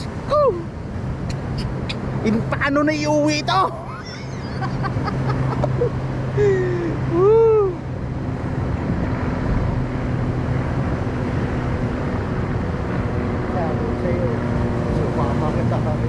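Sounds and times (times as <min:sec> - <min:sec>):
wind: 0:00.0 - 0:16.0
man exclaiming: 0:06.4 - 0:07.8.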